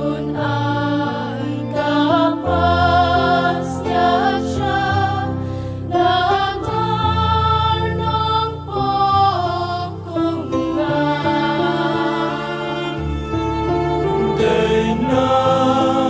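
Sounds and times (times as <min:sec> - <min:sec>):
mixed choir singing: 0:00.0 - 0:16.0.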